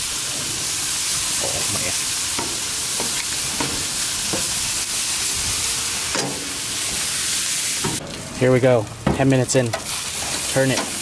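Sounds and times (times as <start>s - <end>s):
chicken sizzling on a grill: 0.0s - 11.0s
marinade crackling: 0.0s - 11.0s.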